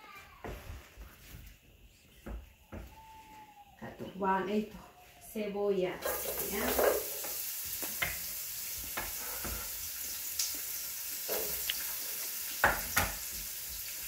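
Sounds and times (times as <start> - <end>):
onion sizzling in oil: 6.0 - 14.0.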